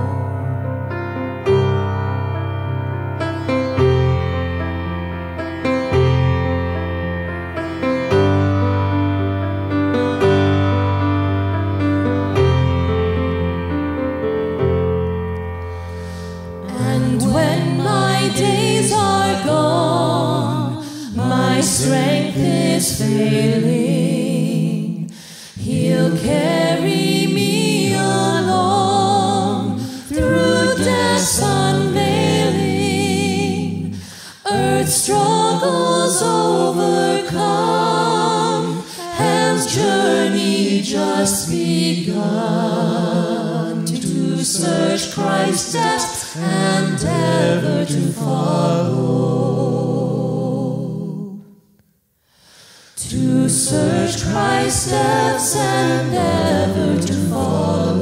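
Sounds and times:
voices singing a hymn: 16.1 - 51.6, 52.6 - 58.0.

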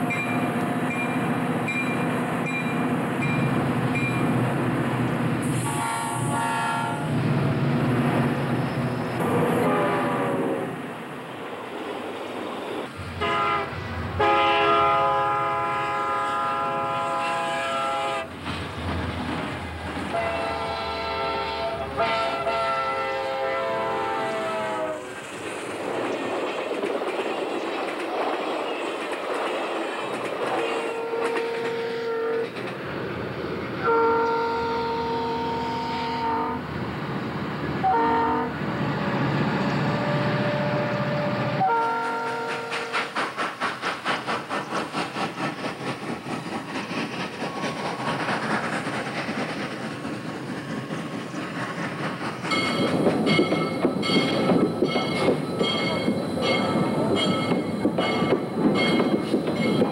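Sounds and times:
locomotive bell ringing: 0.0 - 4.3, 52.5 - 59.9
steam locomotive chuffing: 0.0 - 10.9, 39.2 - 59.9
multi-tone horn blasts: 5.6 - 7.1, 9.2 - 10.8, 13.2 - 18.3, 20.1 - 25.0, 30.8 - 32.4, 33.8 - 36.6, 37.8 - 38.5, 40.5 - 42.9
model train running: 40.8 - 59.9.

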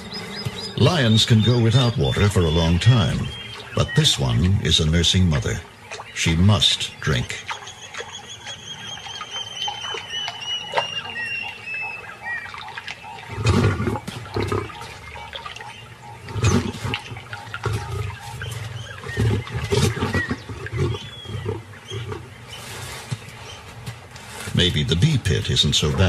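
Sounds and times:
lioness snarling and growling: 13.2 - 15.2, 16.0 - 23.0.

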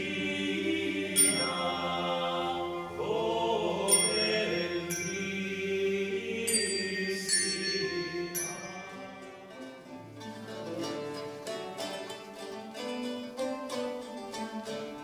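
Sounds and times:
small bells ringing: 1.1 - 2.9, 3.8 - 9.8
lutes playing quick plucked melody: 8.7 - 15.0.

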